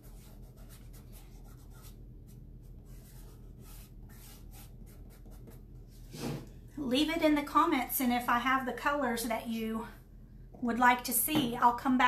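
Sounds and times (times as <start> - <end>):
scratchy rubbing strokes on board: 0.0 - 6.5
low steady hum: 0.0 - 12.0.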